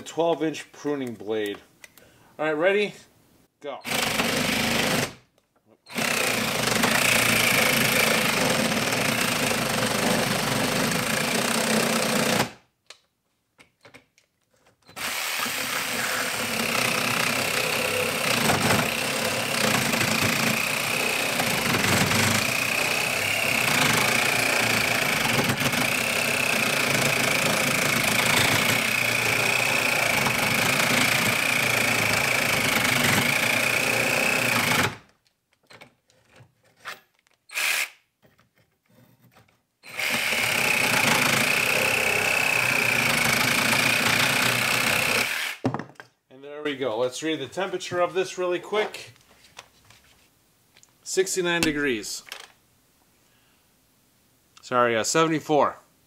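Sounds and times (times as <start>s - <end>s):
reciprocating saw cutting wood: 15.0s - 35.0s, 39.9s - 45.6s.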